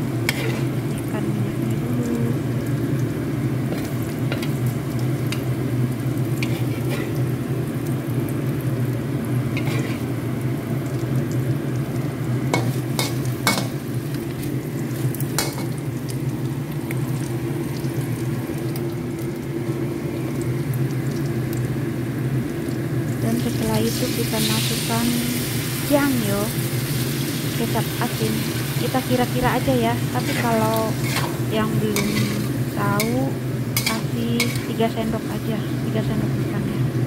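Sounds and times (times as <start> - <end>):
meat frying in a wok: 0.0 - 37.0
metal spatula scraping a wok: 0.3 - 0.8, 6.4 - 7.2, 9.6 - 10.1, 30.2 - 33.1, 33.8 - 34.8.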